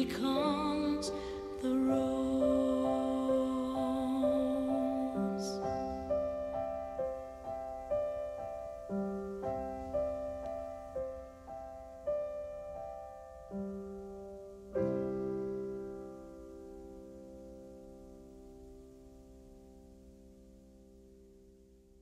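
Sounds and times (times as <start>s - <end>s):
gentle piano melody: 0.0s - 22.0s.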